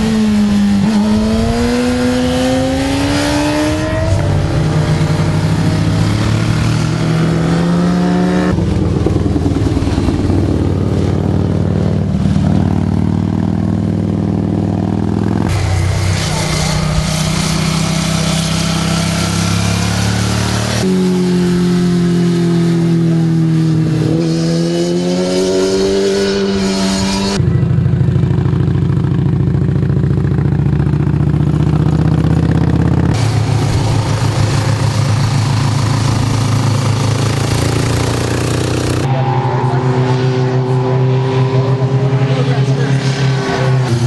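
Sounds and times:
motorcycle engines riding past: 0:00.0 - 0:44.0.

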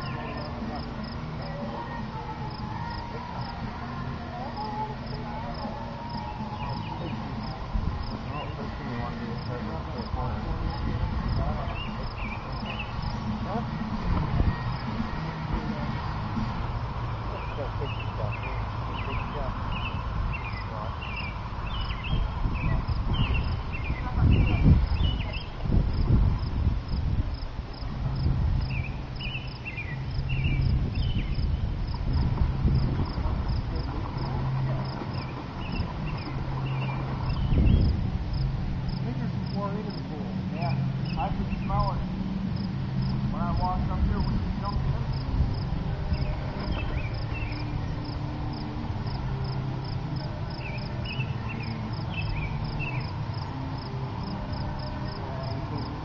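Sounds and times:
songbird calling: 0:00.0 - 0:03.6, 0:04.3 - 0:13.7, 0:17.2 - 0:26.1, 0:28.6 - 0:32.2, 0:32.8 - 0:40.0, 0:40.6 - 0:42.0, 0:42.6 - 0:56.0
insect chirping: 0:00.0 - 0:56.0
low background rumble: 0:00.0 - 0:56.0
low steady hum: 0:00.0 - 0:56.0
bird chirps: 0:17.4 - 0:25.6, 0:46.1 - 0:48.6, 0:50.5 - 0:53.5.

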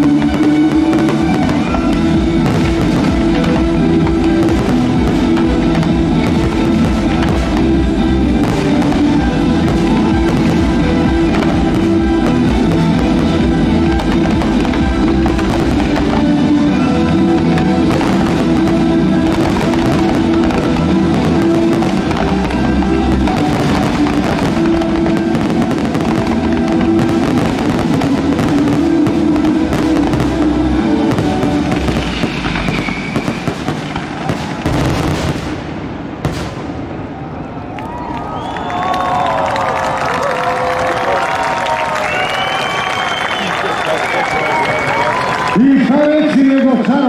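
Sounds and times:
loud music with held chords: 0:00.0 - 0:35.2
fireworks bangs and crackling: 0:00.0 - 0:47.0.

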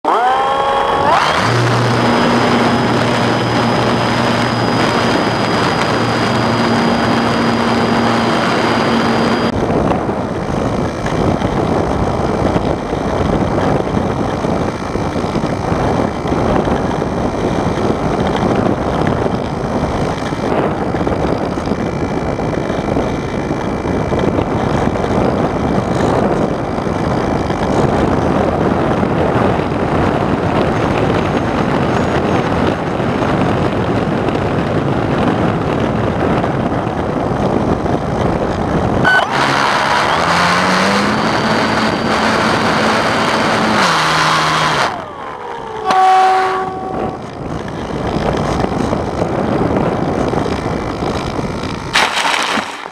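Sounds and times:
steady pitched tone: 0:00.0 - 0:11.1, 0:39.0 - 0:48.0
model airplane motor and propeller: 0:00.0 - 0:52.9.

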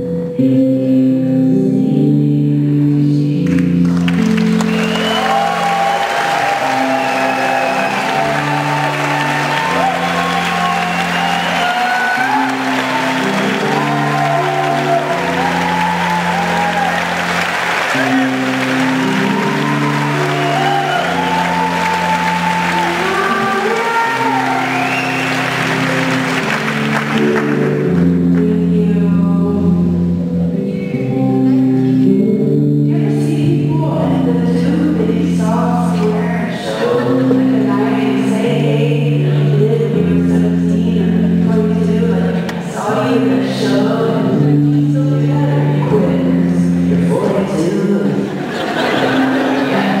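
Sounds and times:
woman singing: 0:00.0 - 0:03.8, 0:06.6 - 0:10.1, 0:19.2 - 0:25.3, 0:28.0 - 0:48.4, 0:49.0 - 0:50.0
sustained chords: 0:00.0 - 0:50.0.

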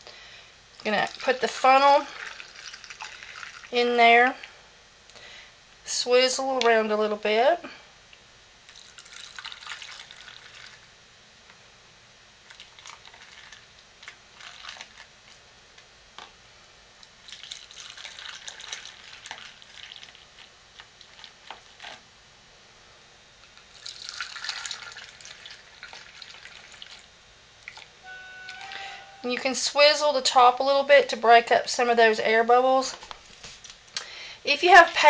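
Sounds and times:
lotion trickling into jars: 0:00.8 - 0:04.4, 0:08.7 - 0:10.8, 0:17.2 - 0:21.4, 0:23.7 - 0:27.9.

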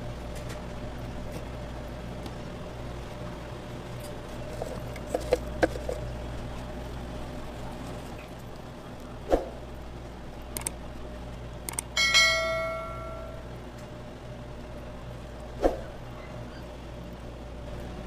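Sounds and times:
background hum: 0:00.0 - 0:18.0
bright bell ding: 0:12.0 - 0:13.5.

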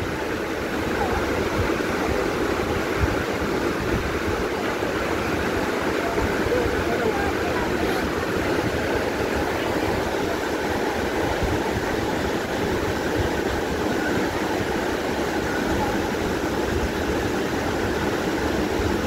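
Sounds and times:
waterfall roaring: 0:00.0 - 0:19.0.

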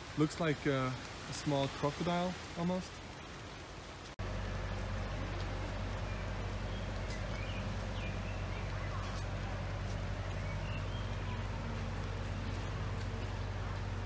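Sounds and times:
low machine hum: 0:04.2 - 0:14.0.

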